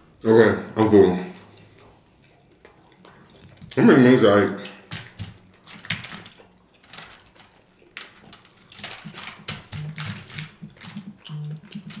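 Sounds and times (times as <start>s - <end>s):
fried chicken wings crackling: 4.9s - 12.0s
person humming: 9.7s - 12.0s.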